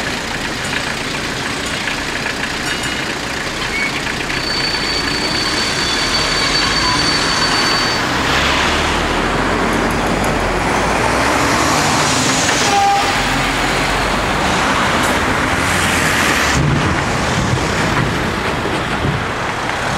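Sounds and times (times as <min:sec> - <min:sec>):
heavy truck driving past: 0:00.0 - 0:19.9
short beep: 0:03.8 - 0:08.3
cars driving past: 0:04.3 - 0:19.9.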